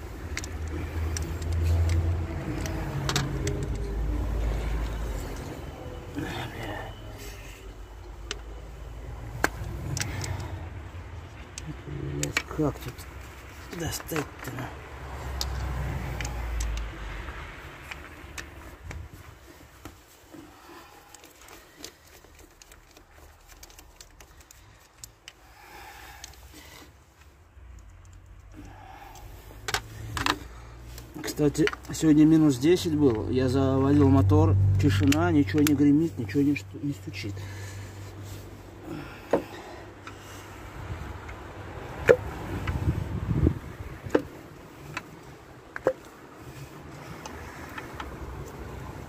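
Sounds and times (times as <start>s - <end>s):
hand ratchet clicking: 0.1s - 5.6s.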